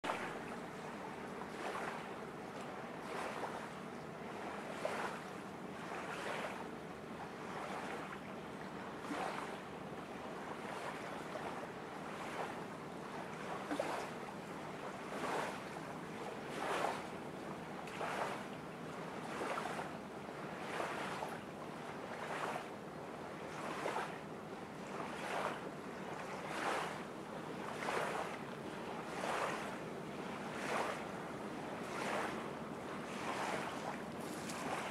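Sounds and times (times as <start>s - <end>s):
small waves washing onto shore: 0.0s - 34.9s.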